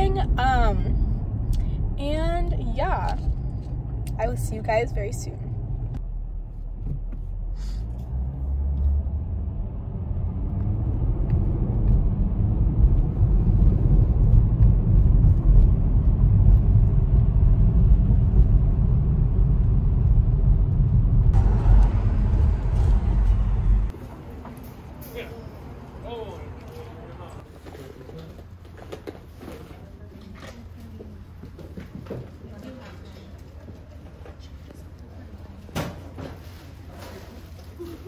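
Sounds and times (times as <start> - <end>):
car driving rumble: 0.0 - 27.5.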